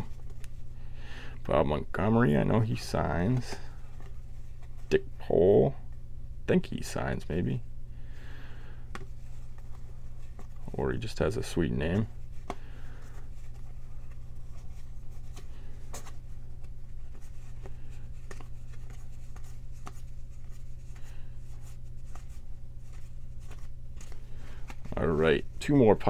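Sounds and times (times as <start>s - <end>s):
cards flicking and rustling: 0.0s - 0.7s, 2.7s - 4.9s, 8.9s - 25.8s
steady low hum: 0.0s - 26.0s.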